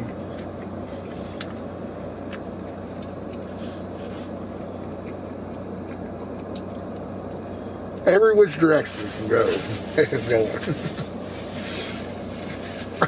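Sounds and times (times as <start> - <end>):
car cabin rumble and hum: 0.0 - 13.0
chewing clicks: 4.8 - 8.0.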